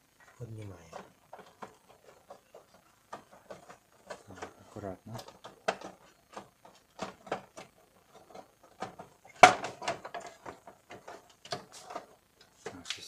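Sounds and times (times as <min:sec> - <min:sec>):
plastic clicks and knocks: 0:00.9 - 0:13.0
loud plastic clack: 0:08.3 - 0:11.6.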